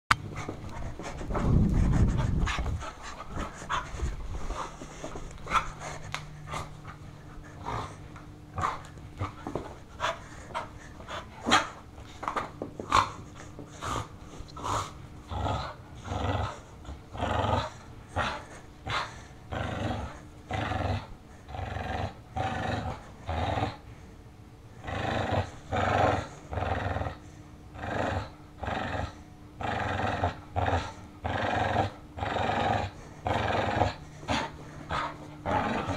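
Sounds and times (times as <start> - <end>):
dog panting: 0.3 - 8.0, 8.6 - 15.0, 33.8 - 35.9
dog growling: 13.8 - 23.8, 24.8 - 35.9.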